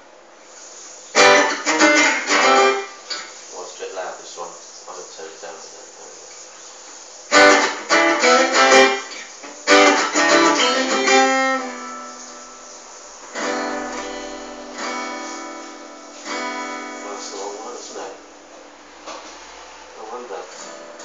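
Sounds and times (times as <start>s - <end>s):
acoustic guitar strummed: 1.1s - 3.4s, 7.3s - 19.7s, 20.6s - 21.0s.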